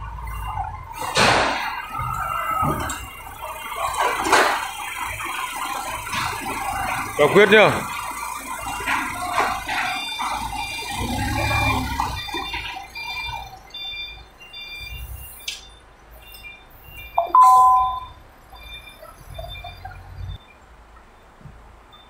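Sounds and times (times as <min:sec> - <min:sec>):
forklift engine running: 0:00.0 - 0:14.8
forklift warning beeps: 0:00.2 - 0:20.6.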